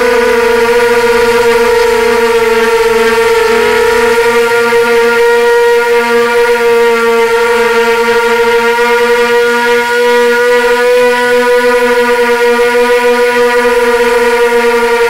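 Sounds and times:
drone propellers whining: 0:00.0 - 0:15.0.

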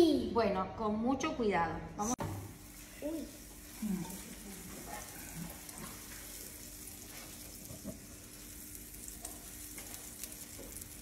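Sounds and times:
butter sizzling on a griddle: 0:02.4 - 0:11.0.

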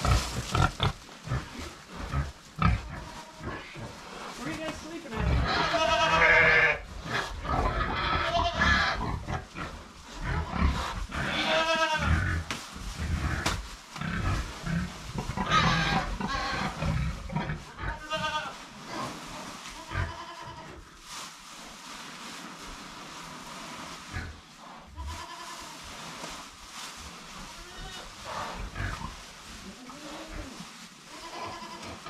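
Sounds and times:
goats bleating: 0:05.4 - 0:06.8, 0:08.0 - 0:09.0, 0:11.2 - 0:12.2, 0:17.8 - 0:18.6, 0:19.8 - 0:20.6, 0:31.1 - 0:32.0.

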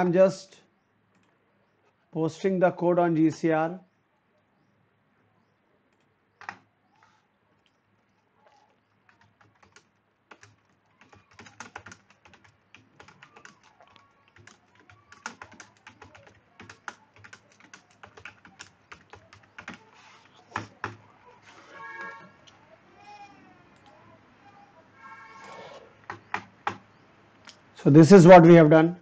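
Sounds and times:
typing on computer keyboard: 0:06.4 - 0:06.6, 0:08.5 - 0:21.0, 0:26.1 - 0:26.8.

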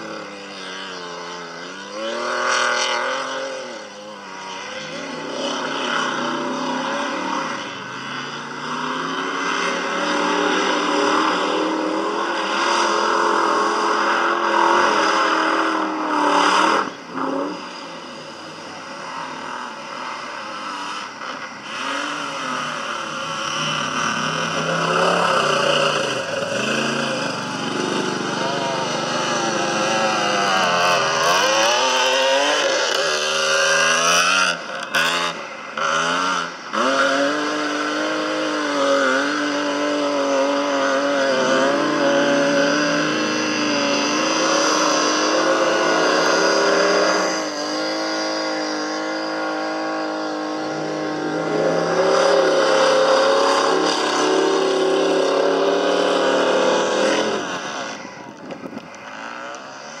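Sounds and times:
truck engine revving hard: 0:00.0 - 1:00.0.

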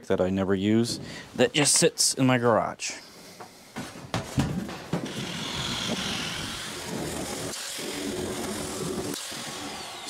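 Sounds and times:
electric shear cutting metal: 0:05.0 - 0:10.0.

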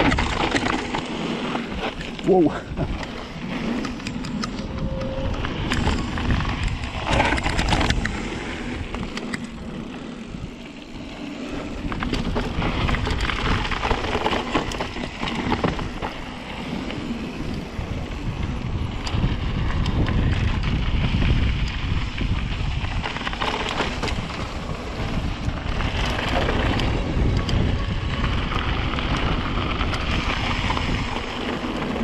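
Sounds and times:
bike clicks and knocks: 0:00.0 - 0:09.7, 0:11.5 - 0:32.0
tyres on dirt and gravel: 0:00.0 - 0:32.0
wind rumbling on microphone: 0:00.0 - 0:32.0.

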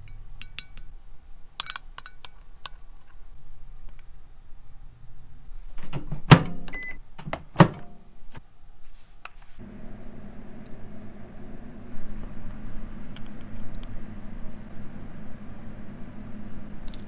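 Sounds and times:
microwave hum: 0:09.6 - 0:17.0.

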